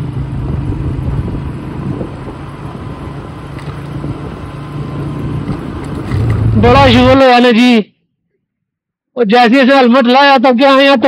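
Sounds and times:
wind buffeting microphone: 0.0 - 7.3
motorcycle engine hum: 0.0 - 8.9.

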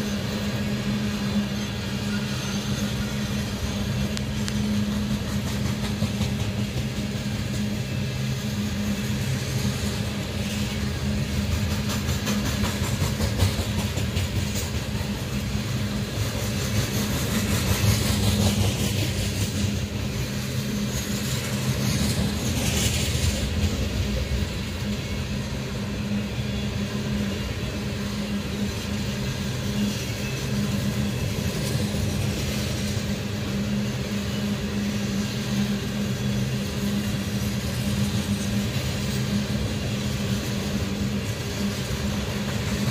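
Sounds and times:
train wheels on rails: 0.0 - 42.9.

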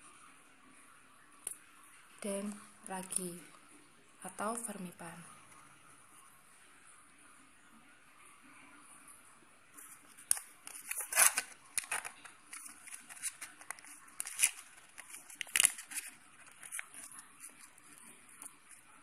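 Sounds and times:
foil sachet crinkling: 9.8 - 19.0.

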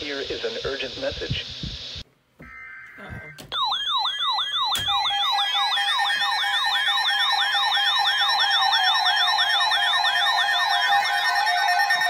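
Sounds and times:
wailing alert siren: 2.5 - 12.0.

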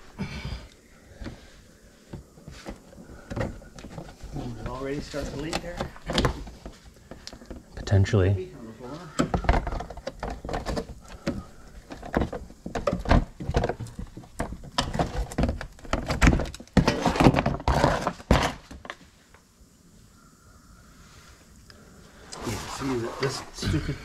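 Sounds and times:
plastic scraping and rubbing: 2.2 - 8.0, 9.1 - 19.0.

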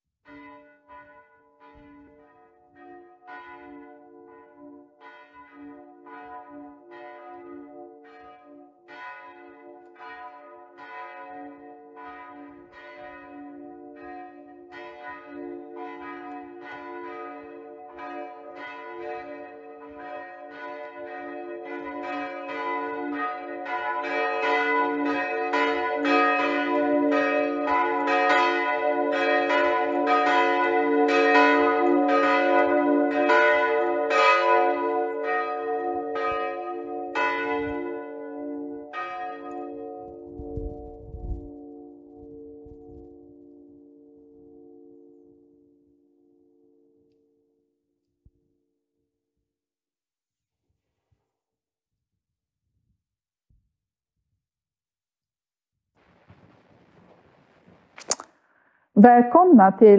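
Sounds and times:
church bells ringing: 0.2 - 47.7.

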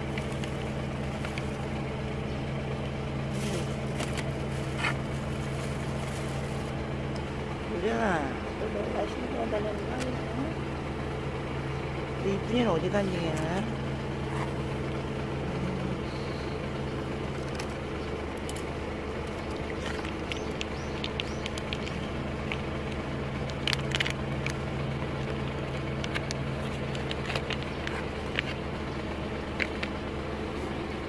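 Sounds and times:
engine idling hum: 0.0 - 31.0
faint clicks and ticks: 19.3 - 28.6.

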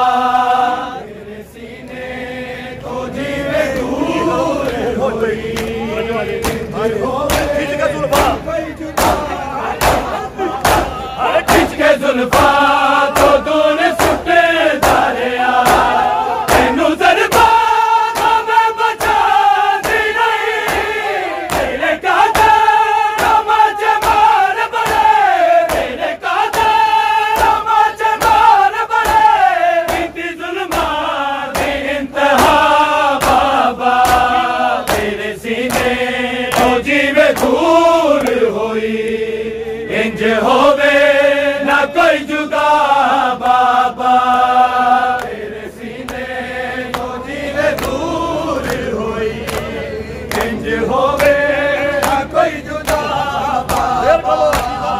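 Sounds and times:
men chanting together: 0.0 - 54.9
hands slapping bare chests: 6.4 - 6.7, 7.3 - 8.4, 9.0 - 13.4, 14.0 - 18.4, 19.0 - 22.6, 24.0 - 27.6, 28.2 - 31.0, 31.6 - 32.6, 33.2 - 37.6, 52.0 - 53.1, 53.7 - 53.9, 54.5 - 54.8.

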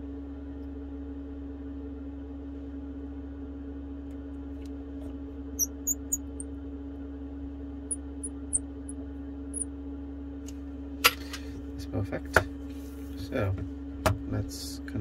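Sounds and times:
steady low hum: 0.0 - 15.0
high-pitched chirps: 5.6 - 6.4.

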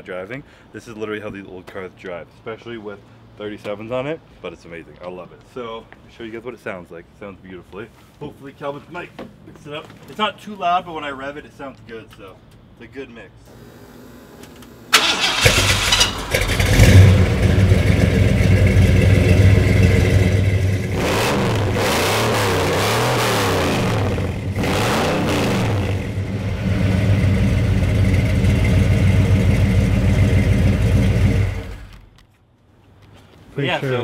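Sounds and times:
truck engine revving: 15.0 - 31.9.

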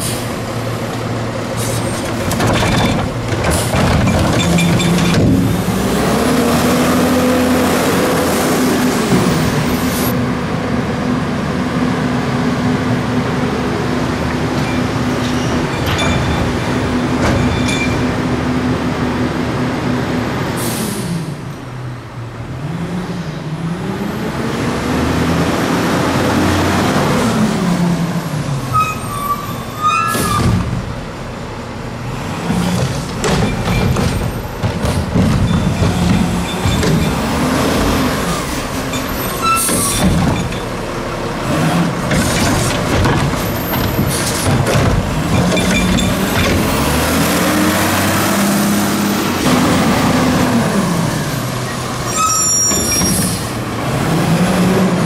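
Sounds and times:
diesel truck engine revving: 0.0 - 15.8, 18.1 - 28.8, 34.2 - 55.0
air brake hisses: 20.6 - 21.2.

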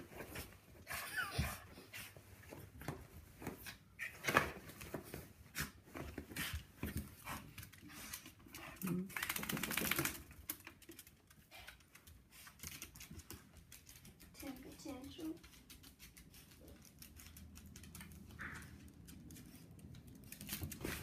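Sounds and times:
dog claws scratching floor: 2.4 - 21.0.

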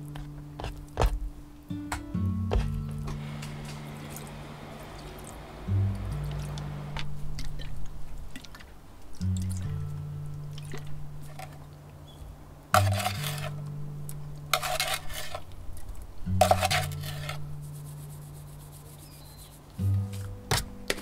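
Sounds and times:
background music with bass: 0.0 - 8.4, 16.2 - 21.0
spoon scraping sugar in bowl: 12.8 - 13.6, 14.5 - 15.4, 16.4 - 19.8.

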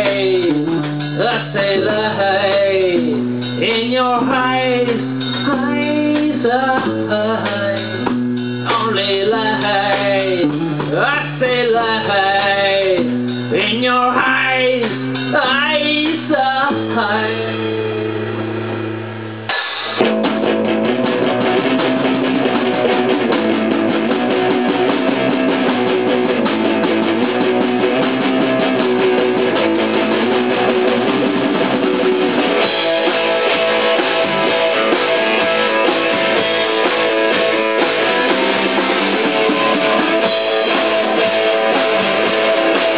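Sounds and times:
person singing: 0.0 - 18.2
rock band playing live: 0.0 - 42.9
strummed electric guitar: 0.0 - 42.9.

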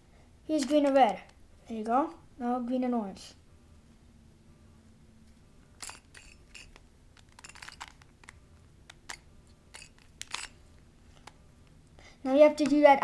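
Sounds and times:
puzzle cube clicks: 0.6 - 1.4, 5.8 - 10.6.

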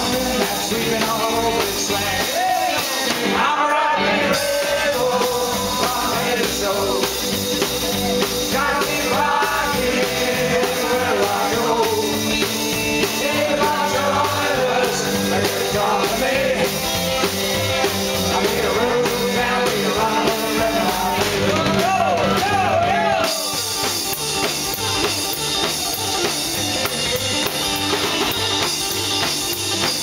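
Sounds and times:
person singing: 0.0 - 16.9, 18.2 - 23.9
rock band playing live: 0.0 - 30.0.

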